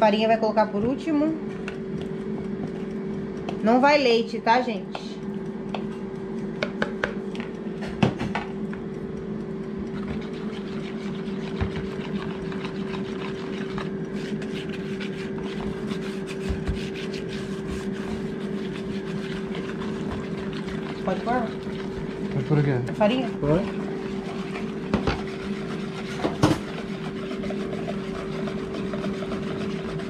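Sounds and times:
steady hum: 0.0s - 30.0s
wire whisk scraping plastic bowl: 9.9s - 30.0s.

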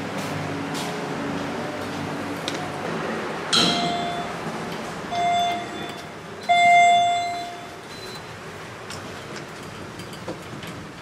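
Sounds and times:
elevator chime dinging: 3.6s - 4.4s, 5.1s - 8.3s.

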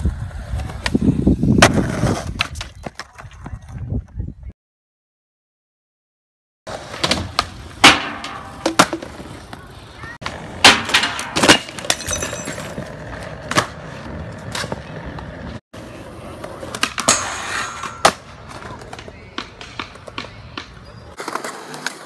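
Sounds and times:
skateboard wheels rolling on concrete: 0.0s - 4.5s, 6.7s - 22.0s
skateboard wooden clacks: 16.7s - 22.0s.

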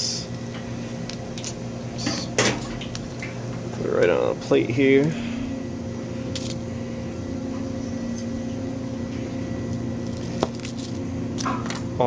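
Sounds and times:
kitchen machine humming: 0.0s - 12.0s.

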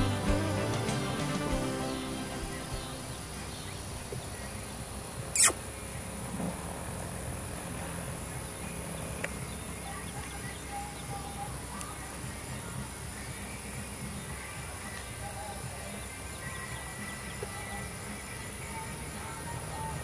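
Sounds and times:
brief sharp noise: 5.3s - 5.6s.

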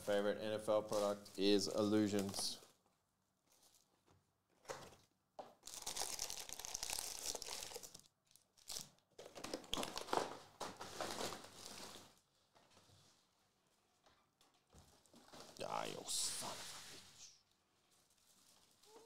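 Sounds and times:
foil packs crinkling: 5.6s - 12.2s.

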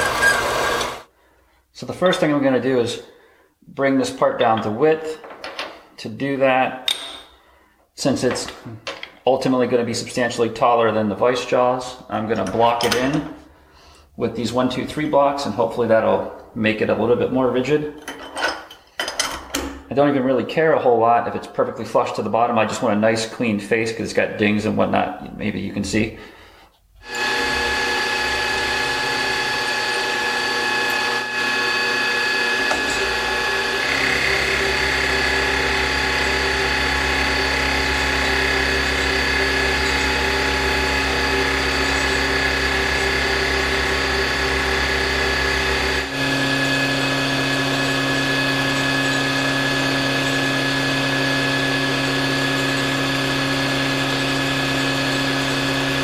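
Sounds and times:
milling machine whine: 0.0s - 1.0s, 27.1s - 56.0s.

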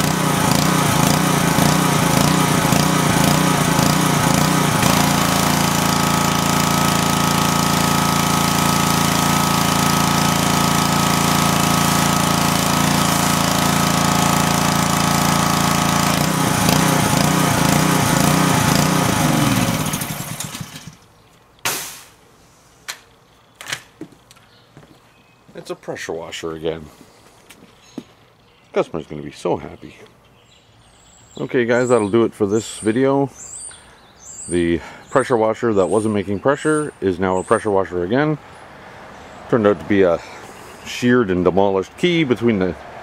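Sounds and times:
pressure washer engine running: 0.0s - 21.0s.

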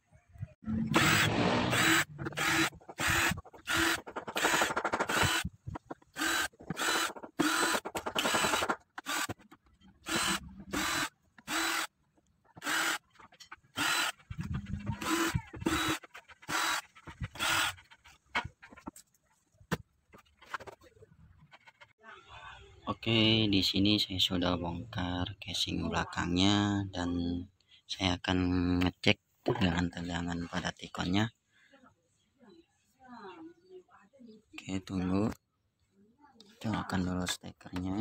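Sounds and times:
cordless drill whirring: 0.9s - 5.5s, 6.2s - 9.4s, 10.0s - 11.9s, 12.6s - 13.0s, 13.7s - 14.3s, 15.0s - 17.8s.

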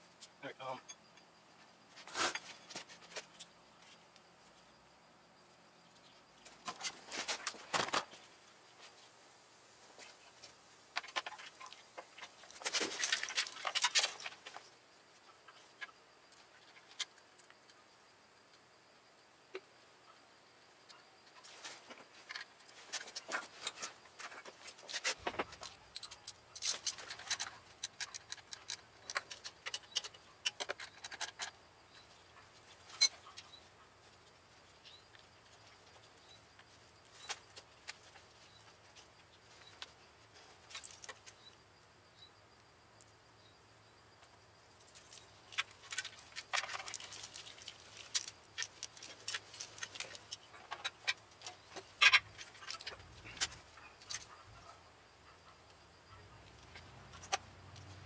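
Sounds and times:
plastic connectors clicking and rattling: 25.5s - 31.6s.

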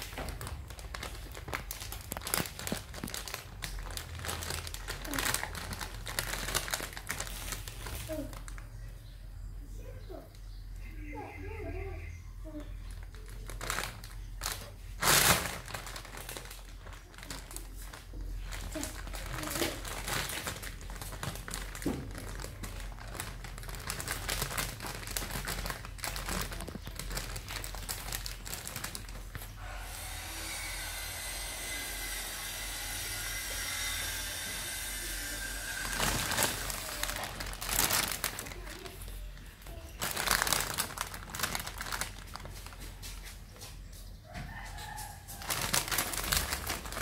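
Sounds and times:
plastic bag crinkling: 0.0s - 8.9s, 12.5s - 43.6s, 44.8s - 47.0s.

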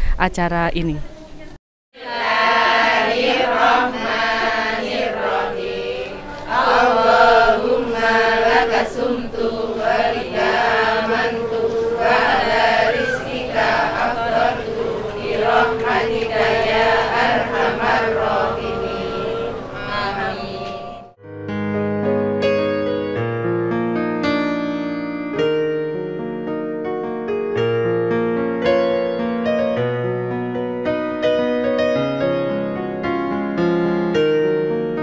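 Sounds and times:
women chanting in unison: 2.0s - 21.2s.

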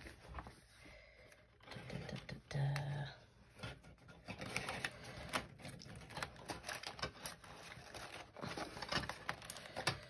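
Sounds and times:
paper pages rustling: 0.0s - 0.8s, 3.5s - 10.0s.

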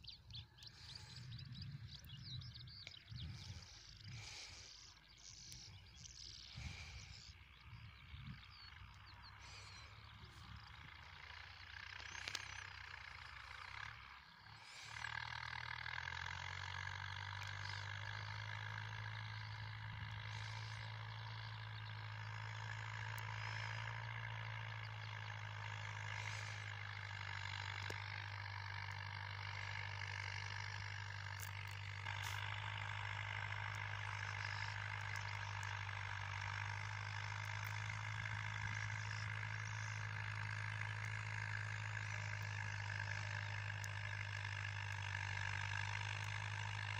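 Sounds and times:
tractor diesel engine under load: 0.0s - 46.9s.

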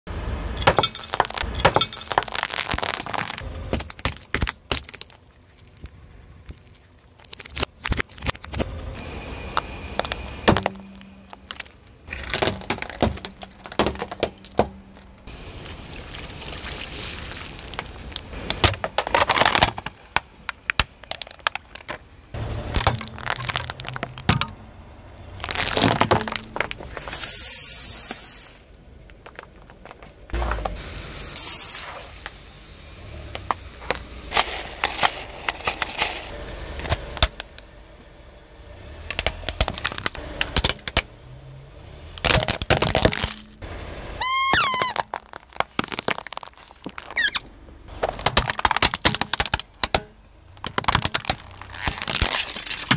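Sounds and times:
light bulb breaking: 0.6s - 5.1s, 22.8s - 24.5s
tyre crushing plastic and glass: 0.6s - 5.8s, 6.5s - 8.7s, 9.6s - 15.3s, 17.7s - 22.0s, 22.7s - 24.6s, 25.3s - 27.2s, 39.1s - 41.0s, 42.2s - 43.6s, 44.2s - 52.9s.

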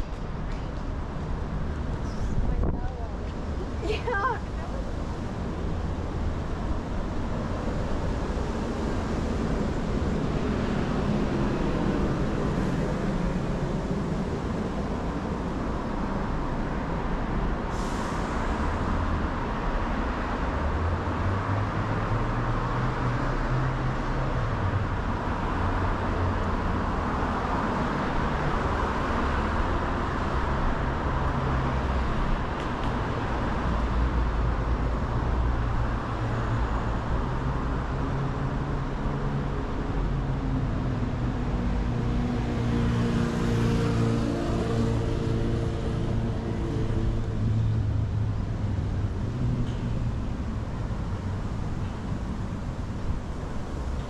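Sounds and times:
city traffic passing: 0.0s - 54.0s
heavy engine drone: 4.9s - 24.2s.

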